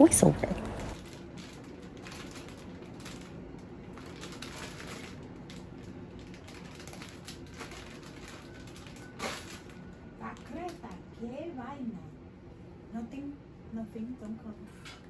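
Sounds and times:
low steady hum: 0.0 - 15.0
plastic bag crinkling: 0.7 - 10.9.

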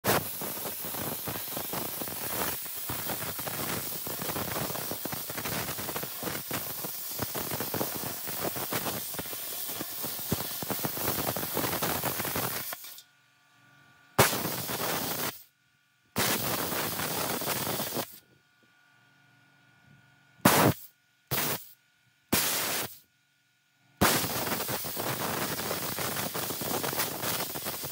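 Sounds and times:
plasma cutter hissing: 0.0 - 13.0, 14.2 - 15.5, 16.2 - 18.2, 20.5 - 21.7, 22.3 - 23.0, 24.0 - 27.9.

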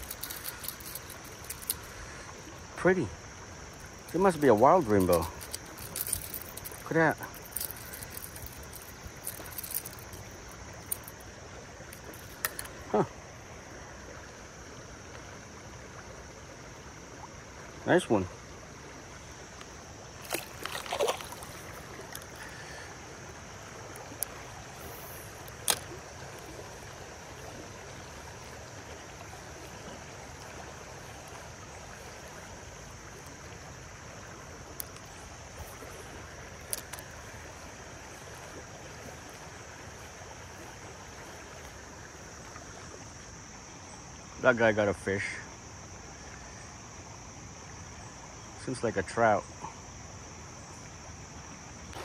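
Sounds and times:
creek water running: 0.0 - 52.0.

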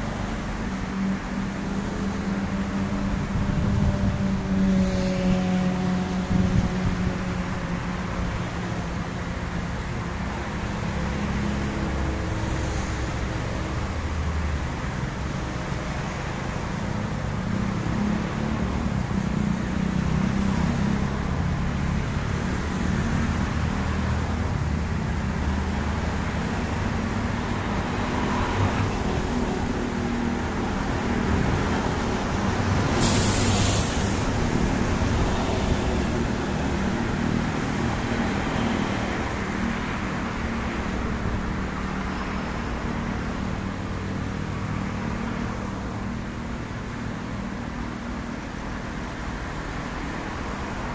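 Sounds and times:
traffic on wet road: 0.0 - 50.9
brief sharp hiss: 32.9 - 34.4.

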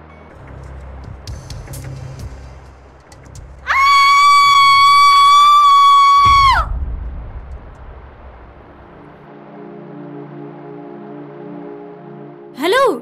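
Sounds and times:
woman screaming: 3.7 - 6.7.

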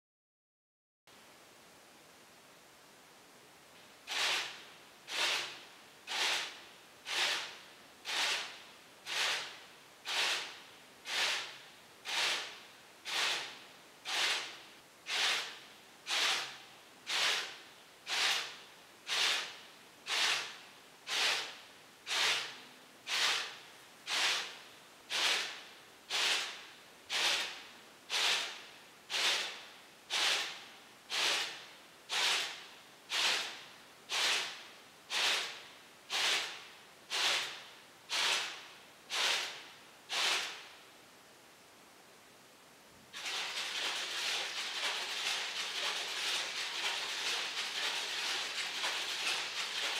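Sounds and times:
clock arms swishing: 4.1 - 5.5, 12.1 - 12.5.

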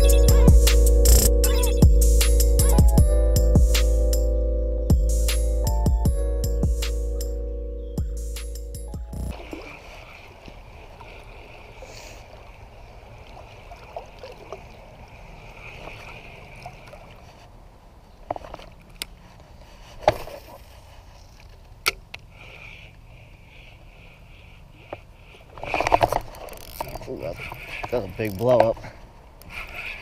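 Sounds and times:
steady high hiss: 0.0 - 9.3
water sloshing and trickling: 9.1 - 21.8, 25.0 - 30.0
fishing reel clicks: 25.7 - 28.6.

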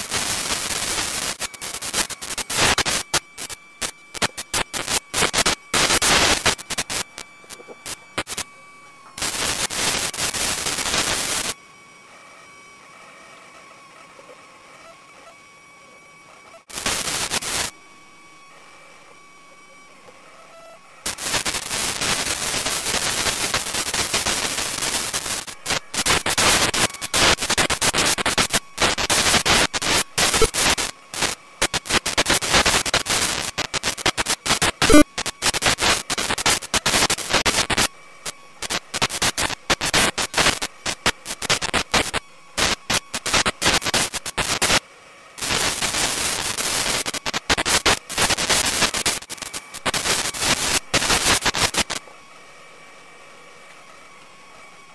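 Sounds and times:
sharp crackle: 0.0 - 8.5, 9.2 - 11.6, 16.7 - 17.7, 21.0 - 44.8, 45.4 - 52.1
hissing static: 0.0 - 11.6, 16.3 - 54.9.

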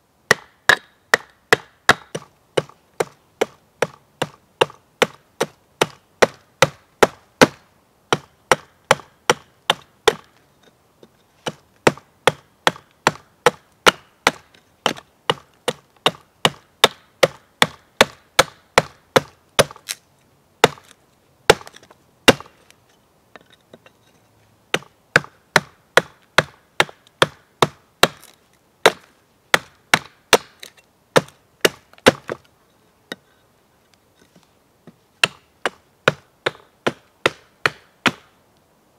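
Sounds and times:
hatchet chopping wood: 0.3 - 10.4, 11.4 - 20.0, 20.6 - 20.9, 21.5 - 22.6, 24.7 - 32.4, 35.2 - 38.3.

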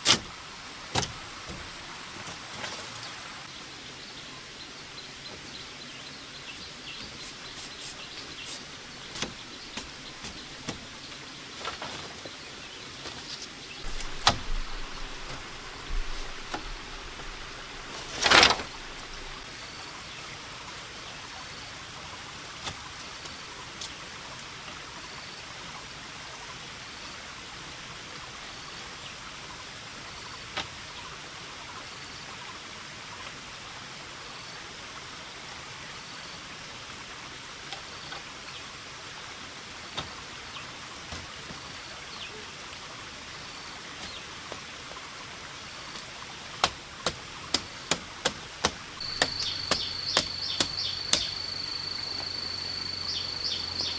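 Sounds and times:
outdoor background: 0.0 - 53.9
bamboo strips knocking and clicking: 13.1 - 19.2, 45.9 - 51.4
loud short bamboo clatter: 18.0 - 18.8
faint high chirp: 49.0 - 53.9.

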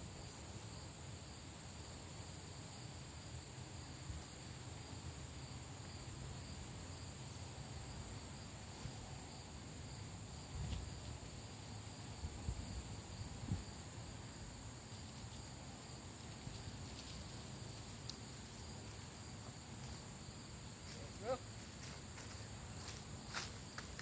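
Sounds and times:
insects chirring: 0.0 - 24.0.

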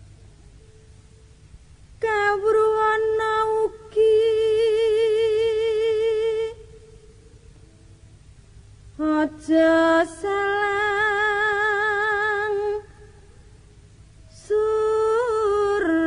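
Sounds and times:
high voice singing with vibrato: 9.0 - 13.2.

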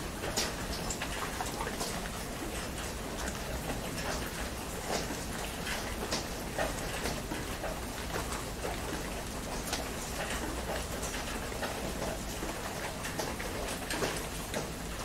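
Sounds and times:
heavy rain falling: 0.0 - 15.0.

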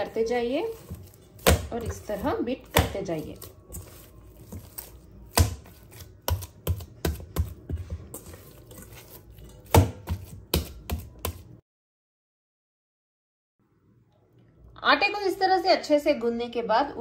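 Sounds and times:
dough slapping in steel bowl: 0.0 - 11.6.

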